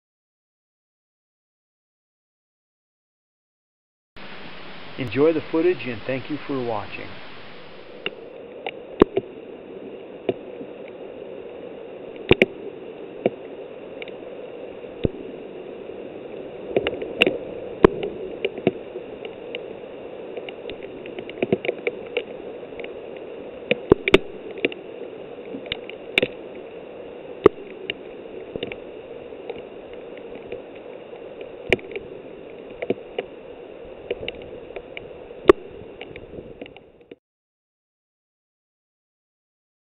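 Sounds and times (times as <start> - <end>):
hail and rain falling through leaves: 4.2 - 8.4.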